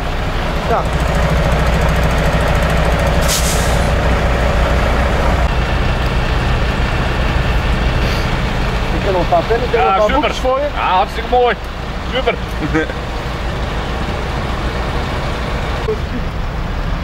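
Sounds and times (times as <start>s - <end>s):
diesel engine idling: 0.0s - 17.0s
air brakes hissing: 3.1s - 4.0s, 8.0s - 8.4s.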